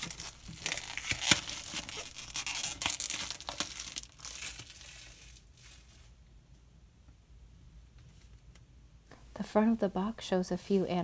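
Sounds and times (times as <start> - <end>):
plastic wrap crinkling: 0.0 - 6.2.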